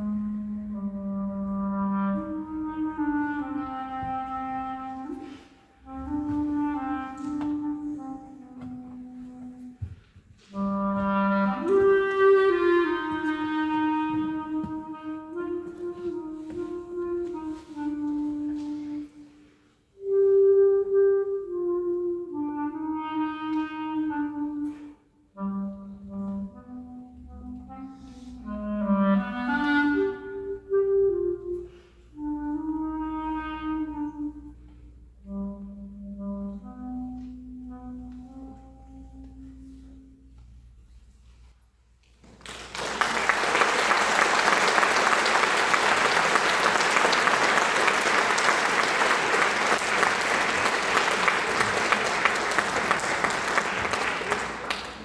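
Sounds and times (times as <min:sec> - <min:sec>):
audience applause: 0:42.3 - 0:55.0.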